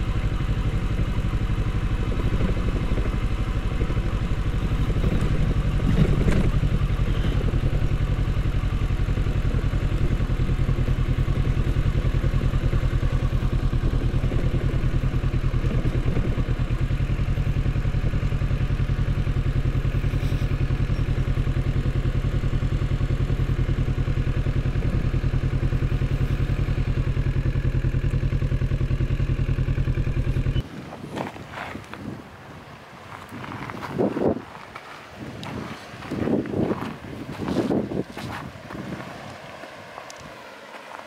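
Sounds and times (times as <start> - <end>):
motorcycle engine running: 0.0 - 32.2, 33.2 - 41.0
wind noise: 30.6 - 39.6
tyres rolling on gravel: 30.6 - 41.0.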